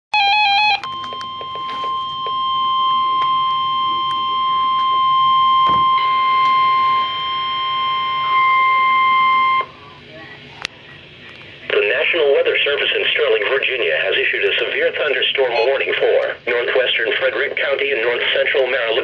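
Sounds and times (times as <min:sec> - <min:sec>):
warbling beep: 0:00.2 - 0:09.7
steady warning alarm tone: 0:00.2 - 0:09.8.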